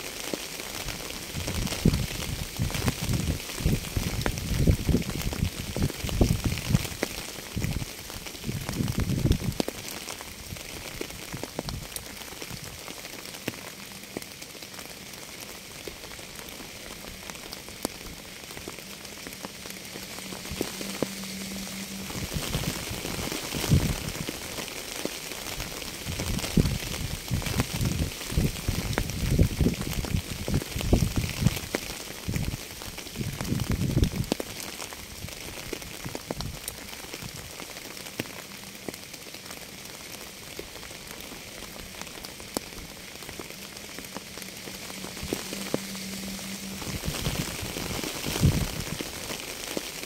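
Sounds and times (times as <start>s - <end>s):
rain falling: 0.0s - 50.0s
low rumbling: 16.0s - 31.6s, 40.7s - 49.4s.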